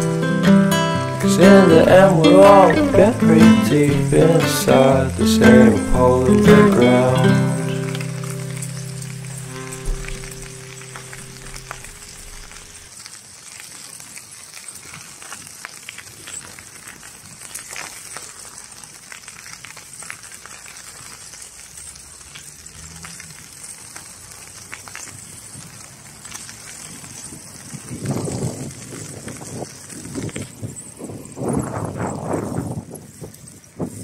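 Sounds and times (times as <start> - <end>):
low rumbling noise: 0.0 - 12.9
steady high hiss: 0.0 - 12.9
soft crackles: 1.5 - 34.0.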